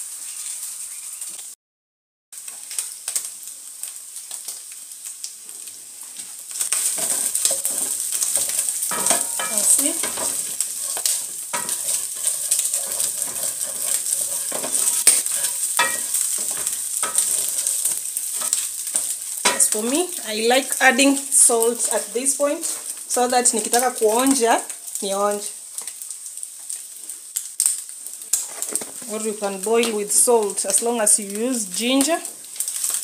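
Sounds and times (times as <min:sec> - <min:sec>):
food sizzling in a pan: 0:00.0 - 0:01.6, 0:02.4 - 0:33.0
wooden spoon scraping a pan: 0:06.6 - 0:24.4.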